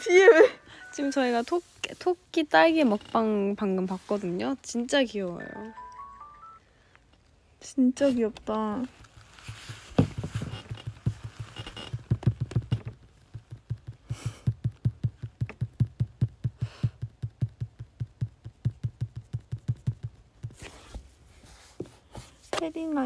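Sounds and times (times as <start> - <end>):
soft low thumps: 9.5 - 20.6.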